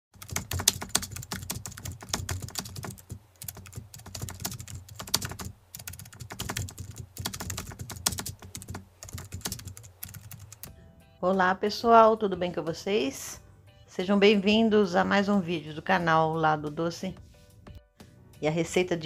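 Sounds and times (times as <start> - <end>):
computer keyboard typing: 0.2 - 10.7.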